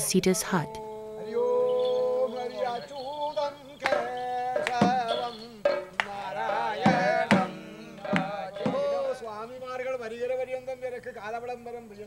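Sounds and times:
person singing ornamented melody: 0:00.0 - 0:09.6
sharp drum strokes: 0:03.9 - 0:09.2.

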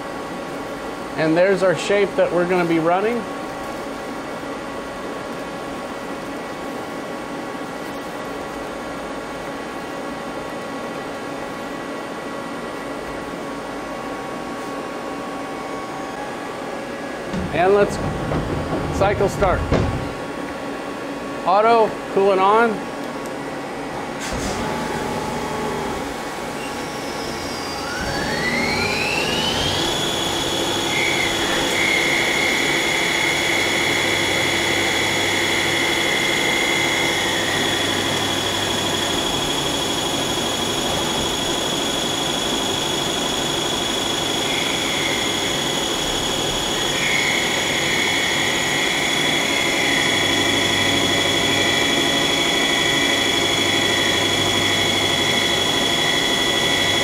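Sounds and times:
lathe spindle whine: 0:24.6 - 0:57.0.

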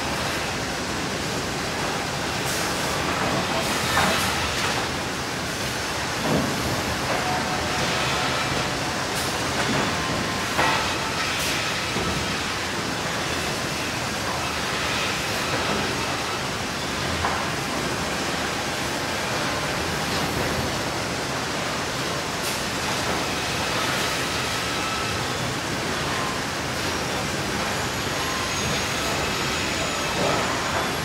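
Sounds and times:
sawmill machinery running: 0:00.0 - 0:31.0.

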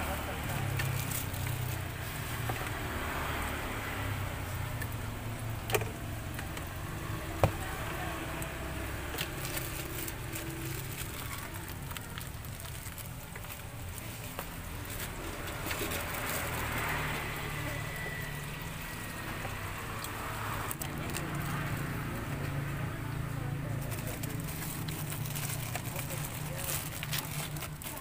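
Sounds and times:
plastic bags being packed: 0:00.0 - 0:02.8, 0:07.3 - 0:17.8, 0:23.7 - 0:28.0
road traffic rumble: 0:00.0 - 0:28.0.

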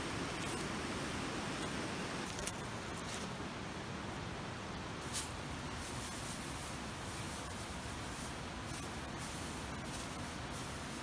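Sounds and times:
steady background hiss: 0:00.0 - 0:11.0
dry grass rustling and crackling: 0:02.2 - 0:03.5, 0:05.0 - 0:11.0.

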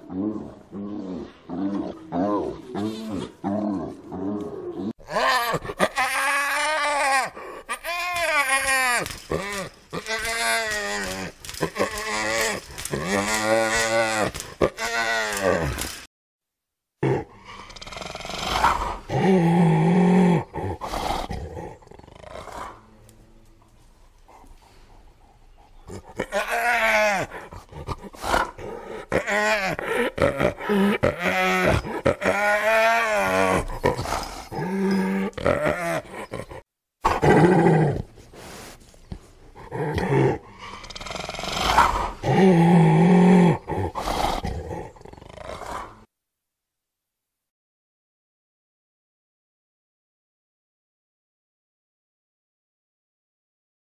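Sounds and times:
hyena growling: 0:00.0 - 0:08.4, 0:09.0 - 0:16.0, 0:17.0 - 0:23.6, 0:24.3 - 0:38.2, 0:39.4 - 0:46.1.

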